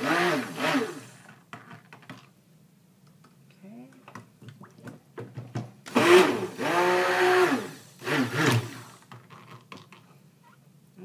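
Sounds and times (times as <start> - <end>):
stick blender motor whirring: 5.9 - 9.0.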